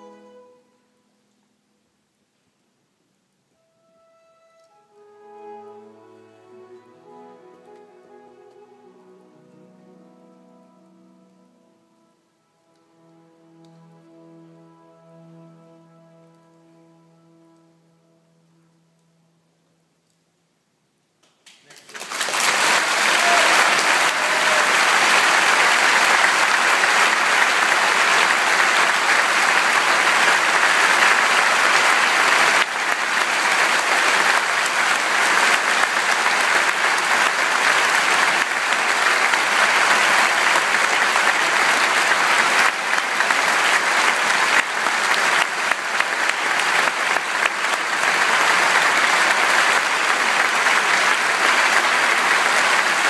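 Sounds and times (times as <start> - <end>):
audience applauding: 21.4 - 53.0.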